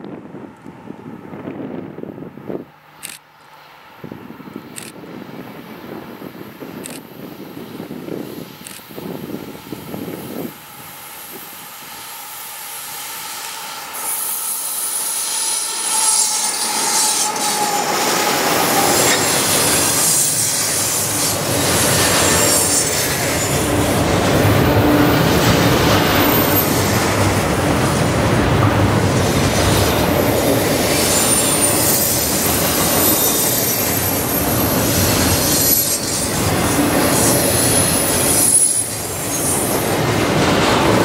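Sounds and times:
diesel locomotives passing: 0.0s - 41.0s
train wheel squeal: 9.7s - 23.9s, 24.6s - 27.3s, 29.3s - 40.1s
train wheels clickety-clack: 13.4s - 41.0s.

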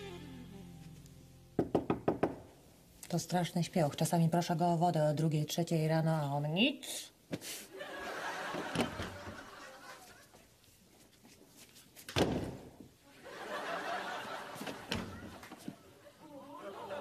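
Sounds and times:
studio audience laughter: 7.8s - 10.5s, 13.2s - 17.0s.

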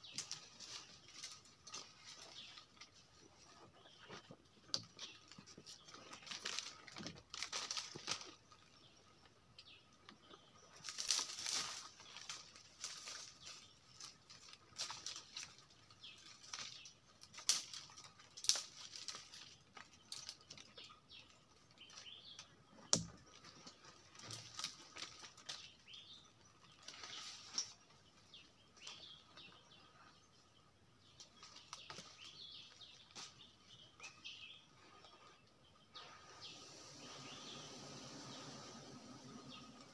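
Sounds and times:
branches clicking and snapping: 0.0s - 3.0s, 4.6s - 8.8s, 10.8s - 28.0s, 31.2s - 34.2s
birds chirping: 0.0s - 39.9s.

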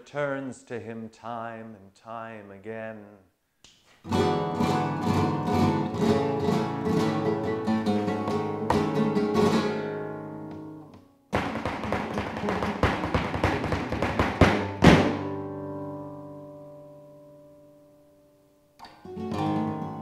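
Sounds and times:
flamenco guitar strumming: 4.1s - 17.9s, 18.8s - 20.0s.

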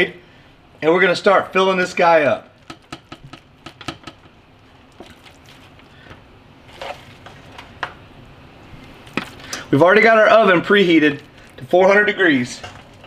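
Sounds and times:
spatula scraping a pan: 6.6s - 7.6s.

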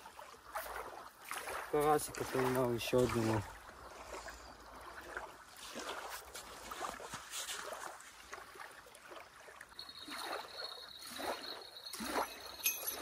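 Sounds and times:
small waves lapping on shore: 0.0s - 13.0s
thin high tone: 9.7s - 13.0s.

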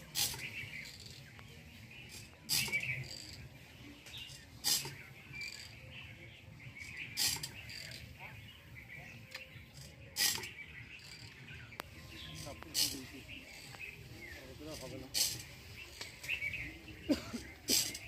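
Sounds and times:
birds chirping: 0.0s - 18.0s
sprayer pump bursts: 17.2s - 18.0s.

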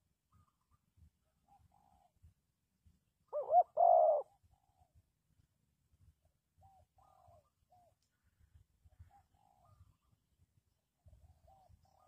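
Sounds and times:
dove cooing: 3.3s - 4.9s, 6.6s - 8.0s, 11.3s - 12.0s.

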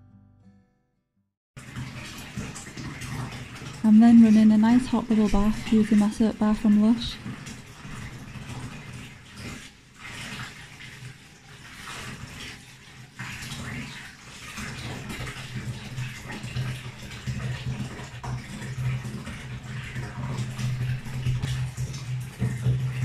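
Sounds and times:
bath tap running water: 1.6s - 23.0s.

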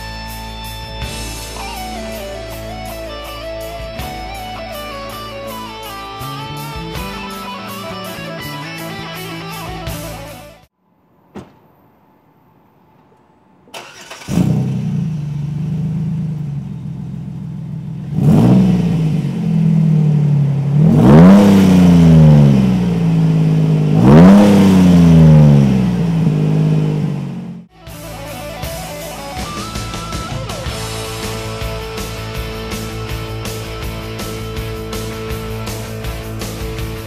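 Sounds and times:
car engine idling and revving: 12.9s - 27.7s, 30.4s - 37.0s.

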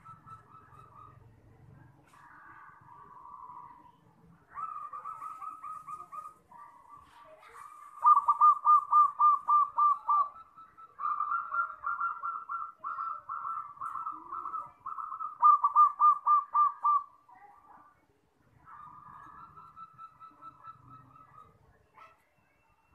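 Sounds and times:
dove cooing in staccato notes: 0.0s - 1.4s, 4.4s - 17.2s, 18.6s - 22.2s.

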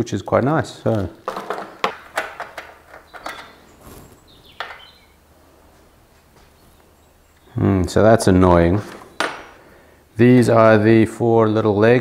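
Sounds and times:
metal brackets and bolts clinking: 1.2s - 3.6s.

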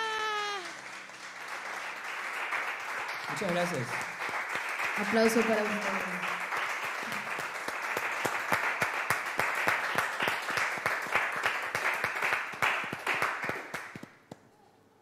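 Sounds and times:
close hand claps: 0.0s - 14.5s
small group applauding: 0.0s - 14.6s.

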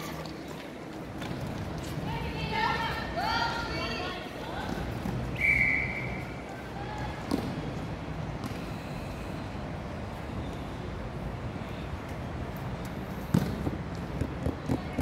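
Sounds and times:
whistle blast: 5.3s - 6.4s.

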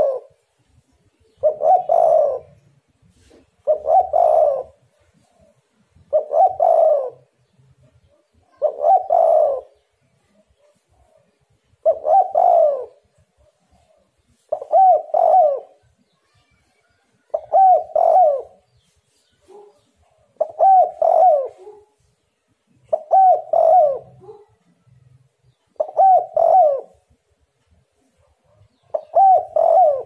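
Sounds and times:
dove cooing: 0.0s - 0.4s, 1.2s - 7.4s, 8.0s - 15.9s, 17.2s - 18.8s, 19.4s - 22.0s, 22.8s - 25.0s, 25.7s - 27.2s, 28.5s - 30.0s.

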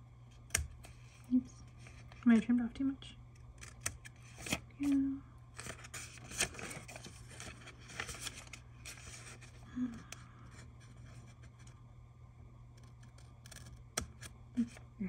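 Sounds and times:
paper handling: 3.5s - 9.6s.

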